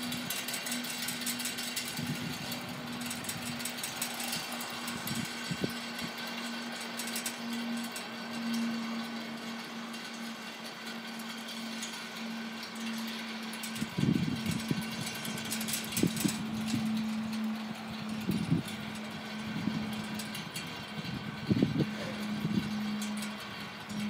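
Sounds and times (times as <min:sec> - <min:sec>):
steady low hum: 0:00.0 - 0:24.0
wind gusting against microphone: 0:01.6 - 0:06.7, 0:13.7 - 0:24.0.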